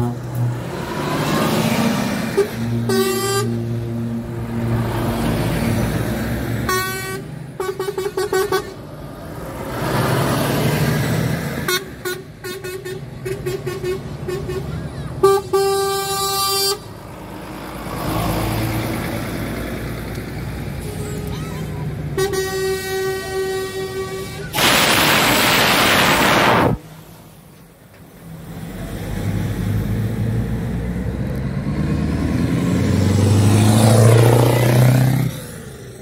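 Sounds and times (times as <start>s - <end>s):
passing truck engines and tyres: 0.0s - 36.0s
truck air horns: 2.2s - 4.0s, 6.6s - 8.9s, 11.6s - 17.0s, 20.8s - 26.8s.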